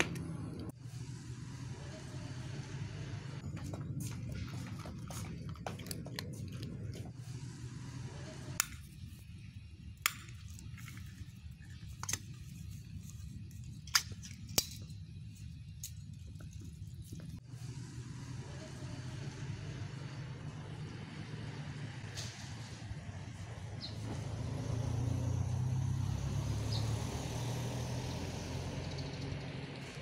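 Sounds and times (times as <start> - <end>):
steady low hum: 0.0 - 24.2
cat crunching dry kibble: 4.3 - 7.1.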